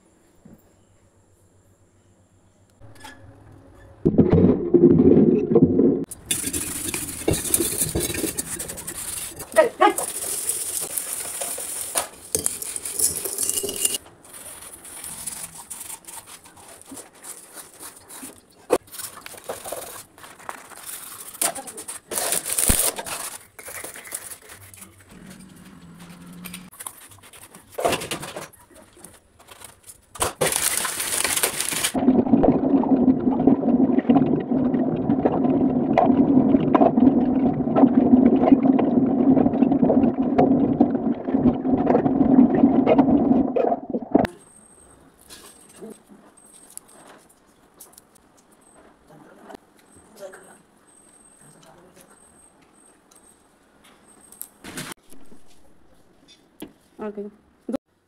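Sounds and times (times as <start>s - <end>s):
utensils clicking and scraping: 6.1s - 18.4s
plastic bag rustling: 6.1s - 32.0s.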